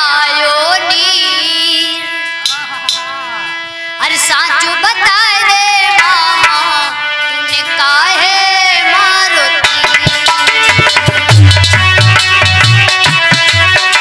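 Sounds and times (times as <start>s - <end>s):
woman singing into a microphone: 0.0s - 2.2s, 4.0s - 10.1s
drum strokes: 9.6s - 14.0s.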